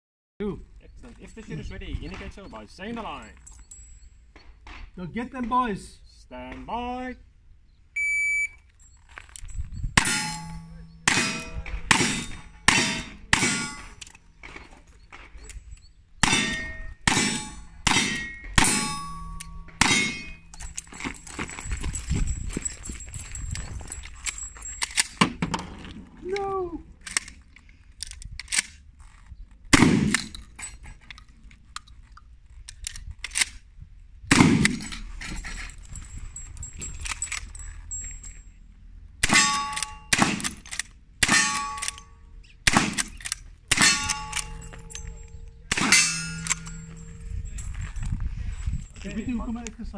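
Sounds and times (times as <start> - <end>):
steel target plate ringing: 10.0 - 15.0, 15.6 - 23.7, 39.2 - 40.4, 41.2 - 48.0
shotgun blasts with echo: 29.7 - 30.3, 34.3 - 35.0, 42.7 - 44.6
sharp clicks and knocks: 42.7 - 48.2.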